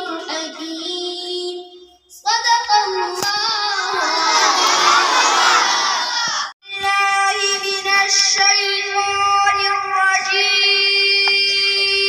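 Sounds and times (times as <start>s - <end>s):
boy singing into microphone: 0.0s - 4.3s, 6.6s - 12.0s.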